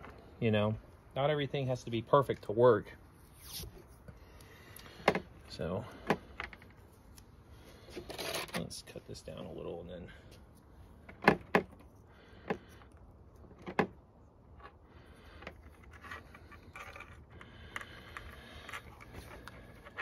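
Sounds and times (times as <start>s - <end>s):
tape peeling off roll: 3.2s - 3.9s.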